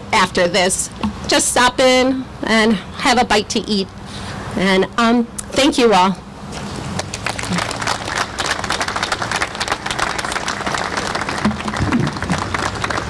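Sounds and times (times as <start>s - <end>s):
crowd applauding: 7.0s - 13.0s.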